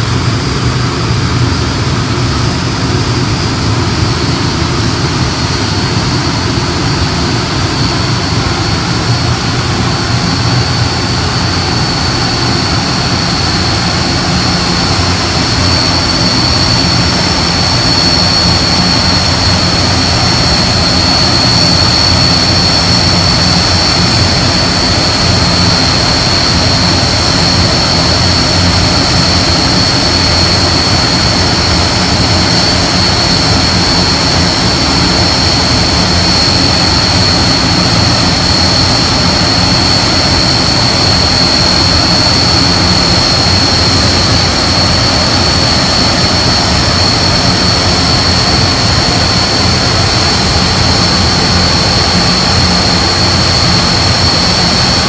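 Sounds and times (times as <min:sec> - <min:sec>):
turboprop aircraft engines running: 0:00.0 - 0:55.0.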